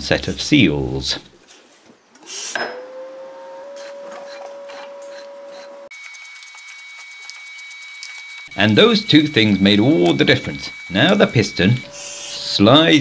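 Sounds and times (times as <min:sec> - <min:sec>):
faint high thin tone: 0:02.6 - 0:12.8
steady whistling tone: 0:06.7 - 0:13.0.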